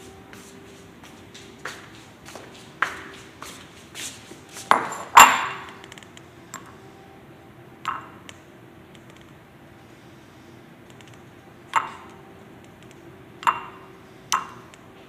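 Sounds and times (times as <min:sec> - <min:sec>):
dishes and cutlery clinking: 0:04.7 - 0:05.9.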